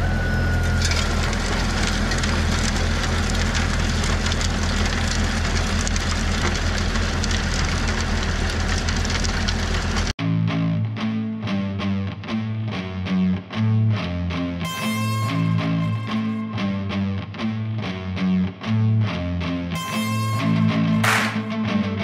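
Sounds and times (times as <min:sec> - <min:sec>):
tractor engine running: 0:00.0 - 0:10.2, 0:21.0 - 0:21.5
rotary tiller churning soil: 0:00.6 - 0:10.1
crackle of small clicks: 0:00.8 - 0:10.1
guitar music: 0:10.2 - 0:22.0.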